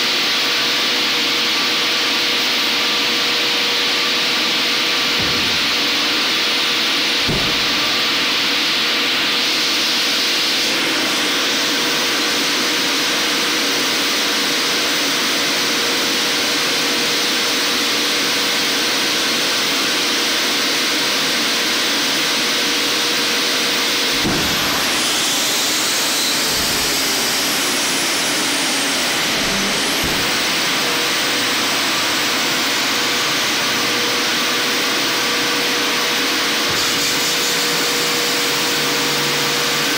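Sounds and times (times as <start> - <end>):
hydraulic pumps rushing: 3.3 - 10.0, 23.8 - 33.9, 36.5 - 39.9
landing gear thump: 4.8 - 6.5, 7.1 - 8.6, 24.1 - 25.6, 26.4 - 30.8.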